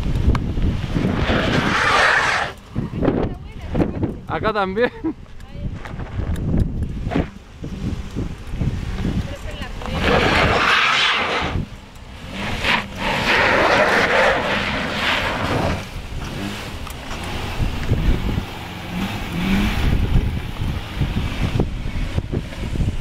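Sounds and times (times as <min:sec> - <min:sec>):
microphone hissing rush: 0:00.0 - 0:04.6, 0:05.6 - 0:23.0
tyres on rutted dirt: 0:00.0 - 0:23.0
car engine under load: 0:05.3 - 0:23.0.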